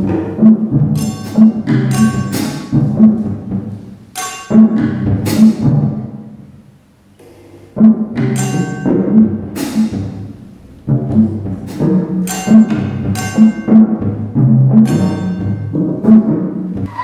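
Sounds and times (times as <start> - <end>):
low tom strokes: 0.0 - 6.6, 7.2 - 17.0
cymbal crashes: 1.0 - 2.9, 11.7 - 15.8.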